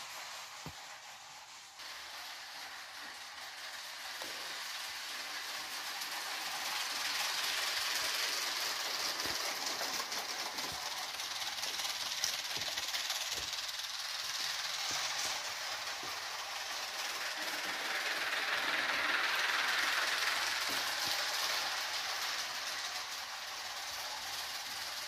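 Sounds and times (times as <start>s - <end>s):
clicks of toy track: 0.0s - 25.0s
toy train motor whirring: 0.0s - 25.0s.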